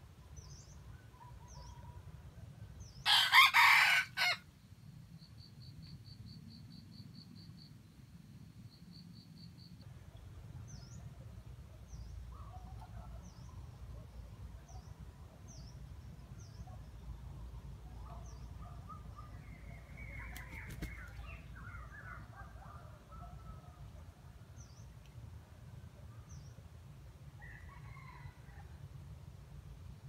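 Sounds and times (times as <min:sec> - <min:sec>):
rooster crowing: 0:03.1 - 0:04.4
small birds chirping: 0:18.0 - 0:22.2.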